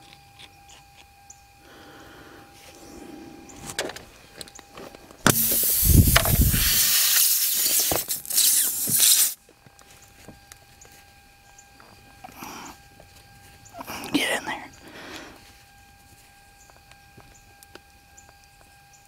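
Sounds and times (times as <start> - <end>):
air hissing from tire: 5.3 - 9.4.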